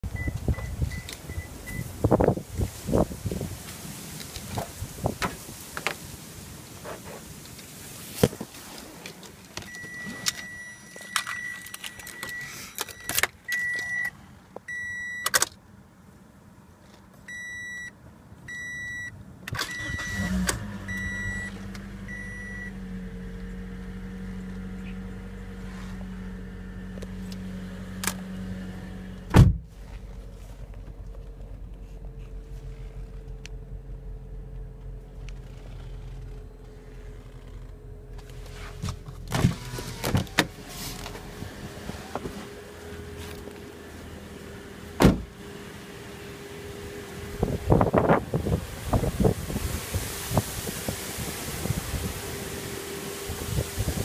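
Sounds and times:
car engine starting and idling: 0.0s - 54.0s
clicks of keys and controls: 9.6s - 15.6s.

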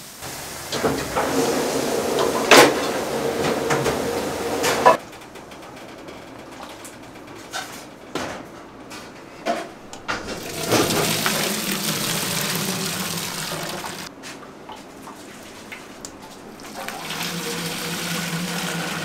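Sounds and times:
running water: 0.0s - 5.0s, 10.2s - 14.1s, 15.1s - 19.0s.

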